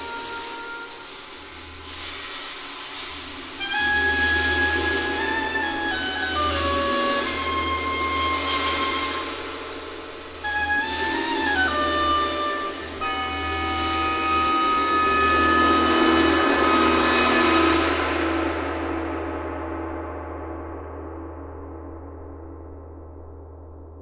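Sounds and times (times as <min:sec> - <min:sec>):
oboe holding high note: 0:00.0 - 0:01.4, 0:03.6 - 0:09.4, 0:10.4 - 0:18.0.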